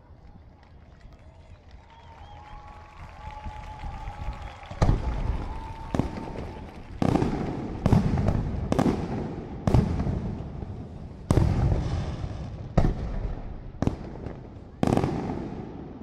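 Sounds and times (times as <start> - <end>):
rolling echo: 4.8 - 16.0.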